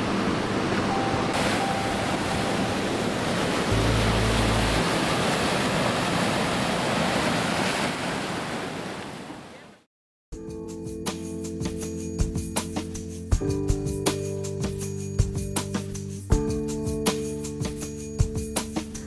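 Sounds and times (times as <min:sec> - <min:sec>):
surf breaking on rocks: 0:00.0 - 0:09.6.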